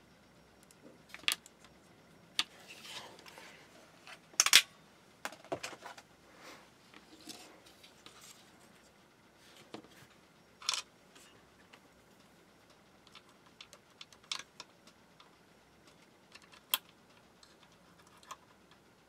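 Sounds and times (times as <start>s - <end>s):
electronic parts clicking: 0.6s - 2.6s, 4.0s - 6.0s, 10.6s - 11.8s, 12.7s - 18.8s.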